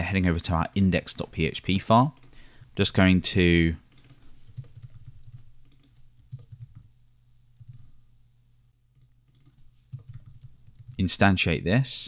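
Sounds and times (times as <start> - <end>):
faint keyboard typing: 2.0 - 2.8, 3.8 - 8.0, 8.9 - 11.2.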